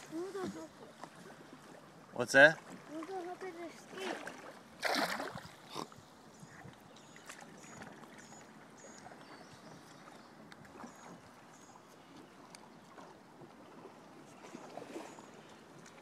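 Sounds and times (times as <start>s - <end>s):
faint lapping water: 0.0s - 16.0s
loud water splash: 4.0s - 5.6s.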